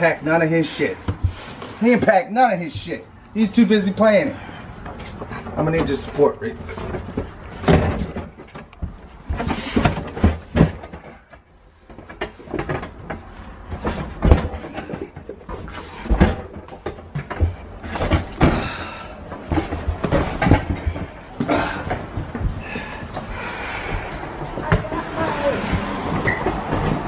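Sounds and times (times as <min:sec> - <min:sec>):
footsteps on carpeted stairs: 0:00.7 - 0:27.0
cardboard box bumping on stairs: 0:12.0 - 0:27.0.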